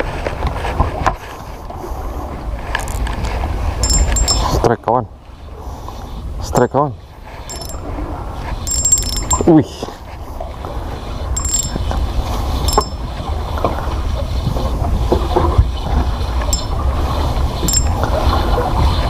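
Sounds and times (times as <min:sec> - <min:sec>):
fishing reel cranking: 0:03.8 - 0:04.6, 0:07.5 - 0:07.8, 0:08.7 - 0:09.5, 0:11.4 - 0:11.9, 0:12.7 - 0:13.0, 0:16.5 - 0:16.7, 0:17.6 - 0:18.0.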